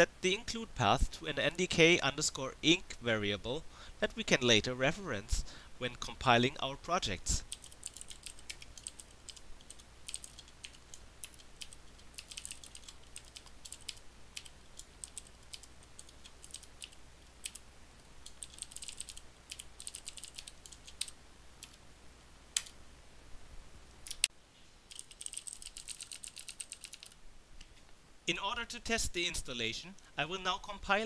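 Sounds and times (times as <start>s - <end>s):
computer keyboard typing: 7.5s - 17.6s, 18.2s - 21.8s, 24.9s - 27.2s.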